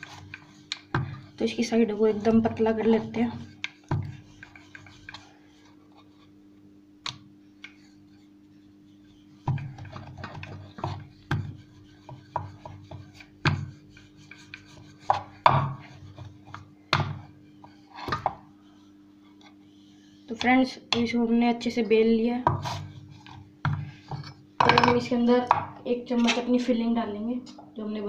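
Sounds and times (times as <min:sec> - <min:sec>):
faint steady hum: 0:00.0 - 0:28.0
rolling pin knocking on board: 0:15.1 - 0:15.8.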